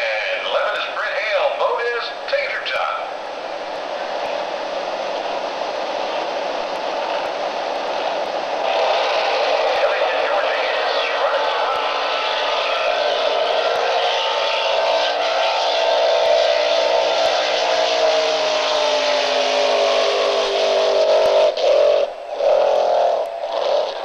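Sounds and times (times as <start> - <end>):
racing boat engine passing: 0.0 - 24.0.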